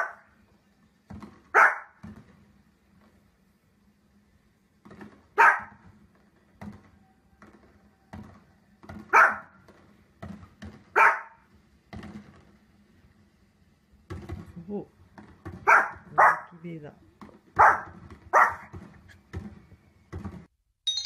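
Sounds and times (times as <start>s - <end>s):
dog barking: 0.0s - 0.3s, 1.5s - 2.0s, 5.4s - 5.8s, 9.1s - 9.6s, 10.9s - 11.4s, 15.6s - 16.6s, 17.6s - 18.7s.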